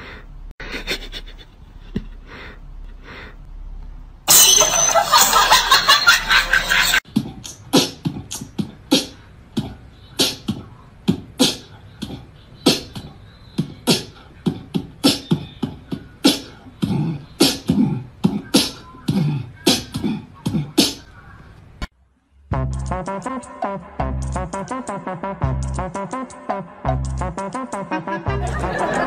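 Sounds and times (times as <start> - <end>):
beatboxing clicks and pops: 7.1 - 21.0.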